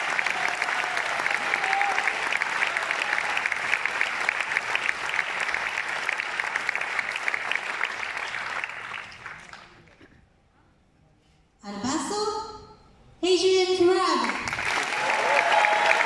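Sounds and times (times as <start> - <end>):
audience applauding: 0.0 - 10.0, 14.2 - 16.0.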